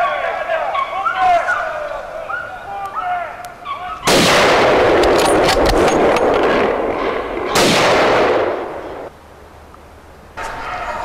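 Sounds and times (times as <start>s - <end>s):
gunshots: 4.1s - 9.1s.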